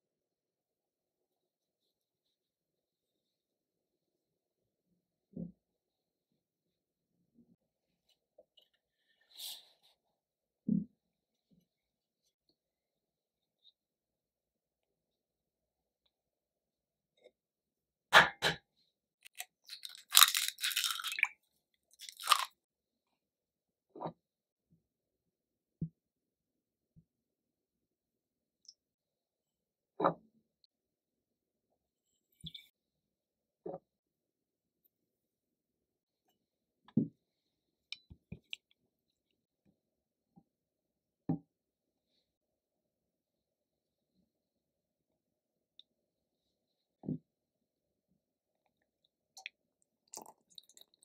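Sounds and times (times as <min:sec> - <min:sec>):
eggshell crackling: 0:19.3 - 0:22.5.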